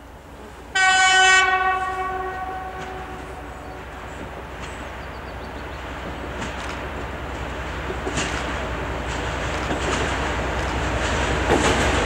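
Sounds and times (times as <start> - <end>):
train rumble: 0.0 - 12.0
locomotive horn blast: 0.7 - 4.0.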